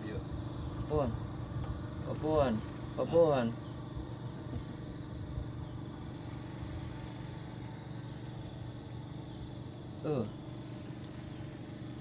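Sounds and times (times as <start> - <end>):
faint outdoor hiss: 0.0 - 12.0
motor humming low: 0.0 - 12.0.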